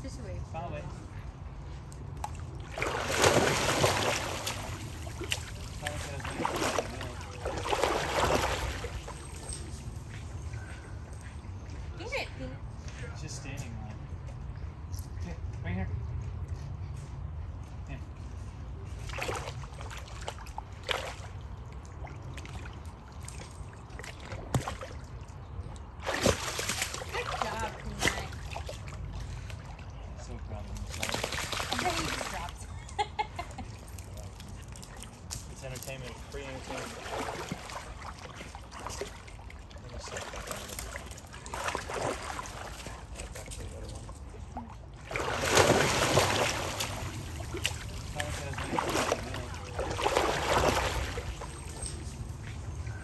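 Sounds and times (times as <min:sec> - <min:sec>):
dog splashing in shallow water: 0:02.2 - 0:09.9, 0:18.9 - 0:32.6, 0:34.0 - 0:52.2.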